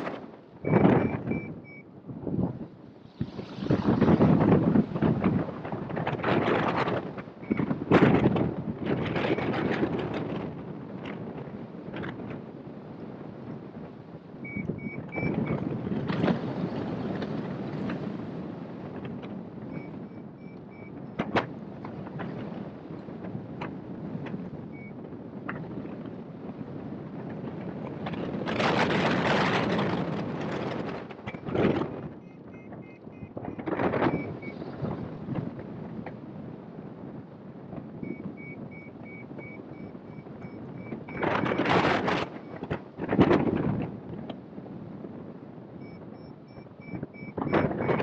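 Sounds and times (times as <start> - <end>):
wind rushing over microphone: 0.0 - 48.0
quick high beeps: 0.7 - 1.8, 32.2 - 33.3, 38.0 - 41.5, 45.8 - 47.9.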